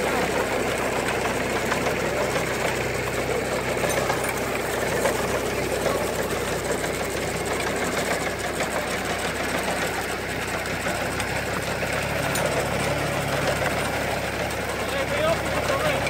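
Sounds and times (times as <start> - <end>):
engine hum: 0.0 - 16.0
reaper clattering: 0.2 - 16.0.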